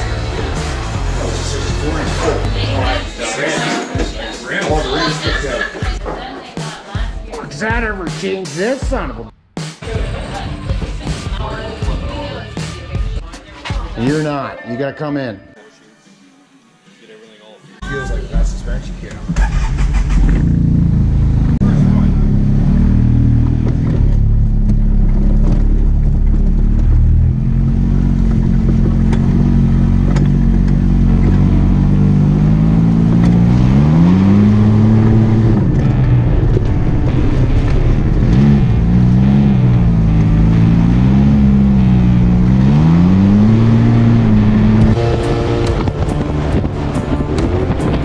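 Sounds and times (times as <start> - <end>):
vehicle engine accelerating: 0.0 - 3.2, 18.5 - 48.0
music: 0.0 - 19.7, 35.6 - 40.6, 44.8 - 48.0.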